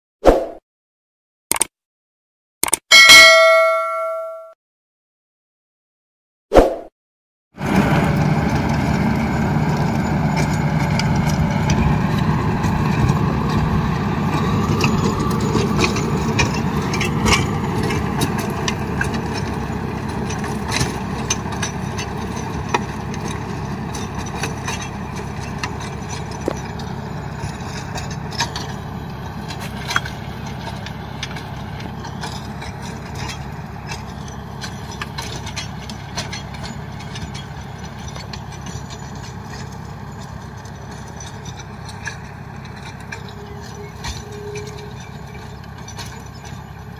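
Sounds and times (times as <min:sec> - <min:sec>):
tractor diesel engine running: 0:07.6 - 0:46.9
tiller clicks and knocks: 0:14.4 - 0:46.8.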